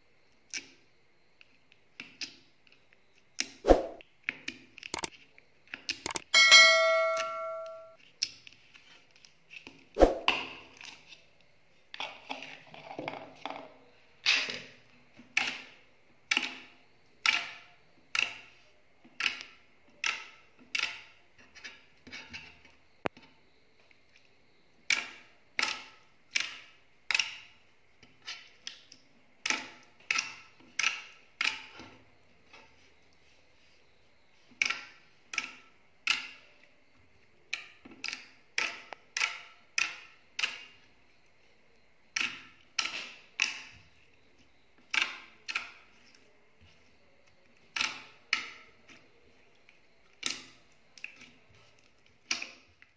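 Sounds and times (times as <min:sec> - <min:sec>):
bell-like ring: 0:06.4 - 0:08.0.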